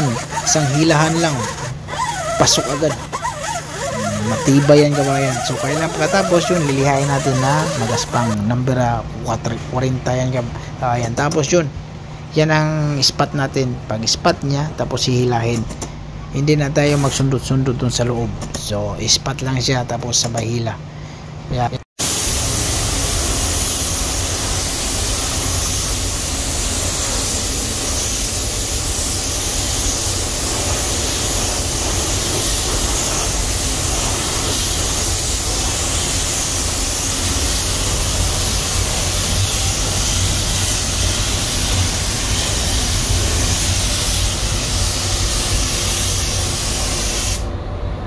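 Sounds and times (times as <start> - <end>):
spray gun hissing: 0.0 - 8.4, 22.0 - 47.5.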